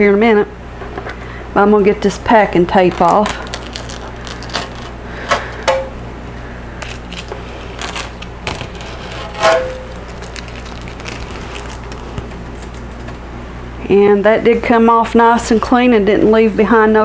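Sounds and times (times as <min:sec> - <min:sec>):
tape tearing: 0:02.7 - 0:05.6, 0:06.8 - 0:13.2
packing tape crackling: 0:02.7 - 0:05.7, 0:06.8 - 0:13.3.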